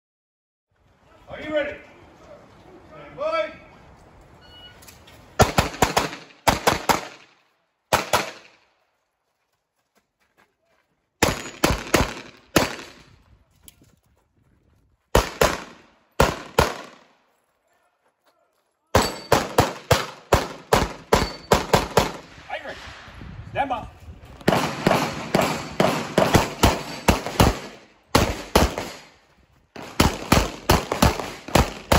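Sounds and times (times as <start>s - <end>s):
pistol shots: 5.4s - 8.6s, 11.2s - 13.0s, 15.2s - 17.1s, 19.0s - 22.3s, 24.4s - 29.2s, 29.8s - 31.9s.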